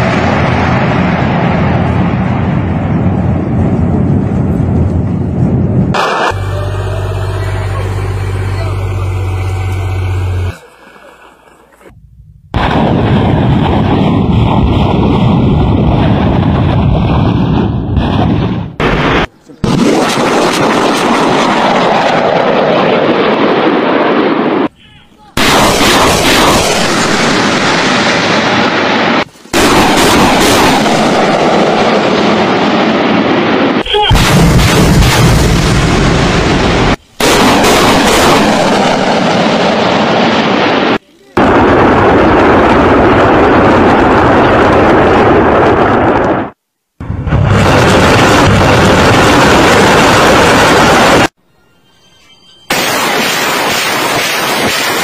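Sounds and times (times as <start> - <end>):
rockets launching roar: 0.0 - 24.8, 25.4 - 51.4, 52.6 - 55.0
rumble of explosions: 0.0 - 51.4, 52.6 - 55.0
steady engine hum: 6.0 - 12.6.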